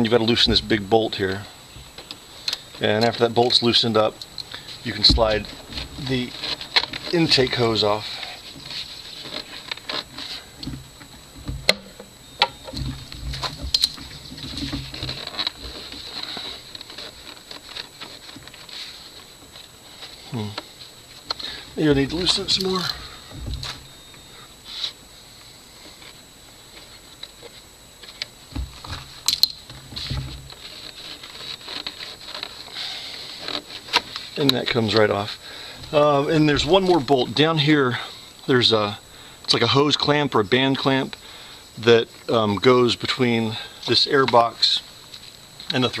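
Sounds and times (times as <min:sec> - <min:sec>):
hose tapping and rubbing: 0:00.0 - 0:24.0, 0:25.8 - 0:37.2
dull bumps: 0:00.4 - 0:01.1, 0:04.7 - 0:18.6, 0:21.4 - 0:24.3.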